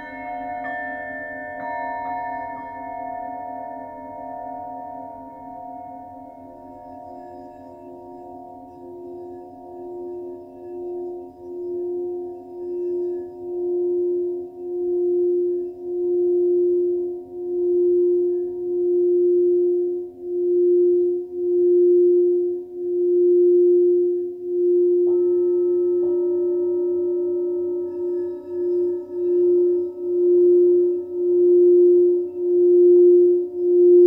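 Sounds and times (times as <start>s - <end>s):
struck bowl ringing: 0.0s - 16.1s
singing bowl low tone: 0.0s - 34.0s.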